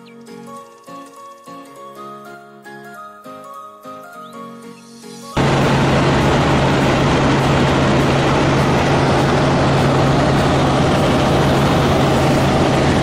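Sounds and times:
helicopter rotor and engine: 5.4 - 13.0
steady low hum: 5.4 - 13.0.

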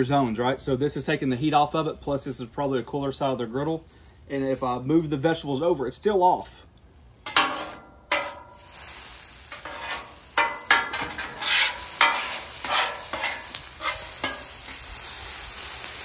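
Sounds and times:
vegetables sizzling: 6.7 - 16.0
metal spatula scraping griddle: 7.2 - 15.8.

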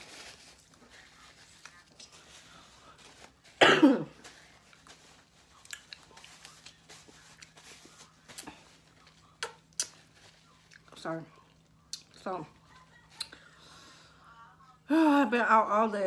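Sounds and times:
woman coughing: 3.6 - 4.2.

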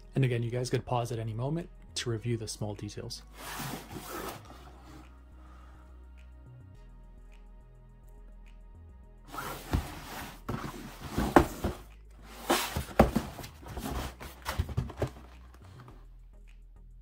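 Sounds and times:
cardboard rustling and scraping: 3.4 - 4.7, 9.3 - 16.0.

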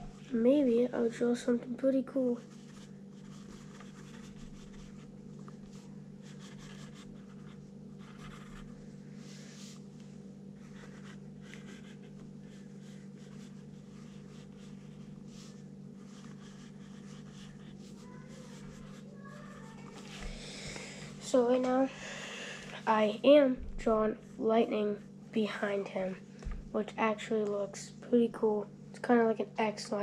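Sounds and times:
steady low hum: 0.0 - 30.0
pencil scratching on paper: 2.4 - 5.0, 6.2 - 8.7, 10.6 - 19.8.

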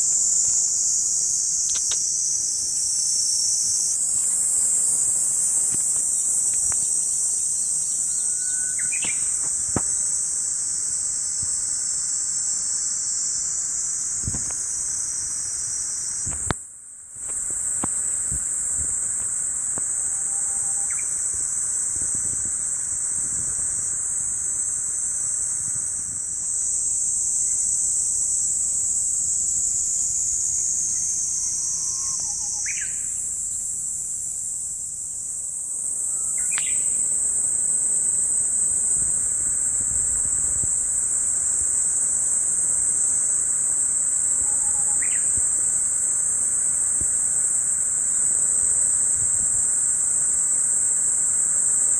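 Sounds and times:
insects buzzing: 0.0 - 51.9.

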